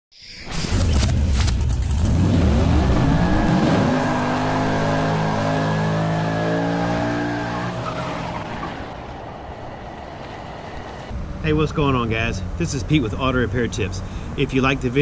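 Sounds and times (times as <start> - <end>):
car engine revving: 0.8 - 11.2
tyres squealing: 3.0 - 11.1.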